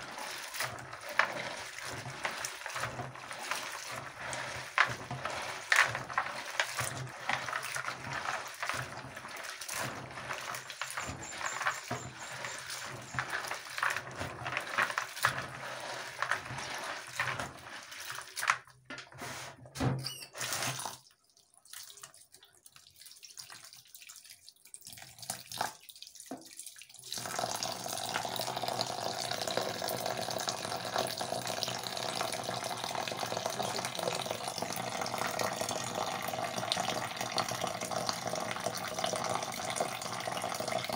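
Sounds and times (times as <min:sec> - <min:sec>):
water running into a bowl: 0:00.0 - 0:18.8, 0:20.4 - 0:40.9
hands squelching beans in water: 0:00.0 - 0:19.4, 0:20.4 - 0:27.4, 0:29.5 - 0:40.9.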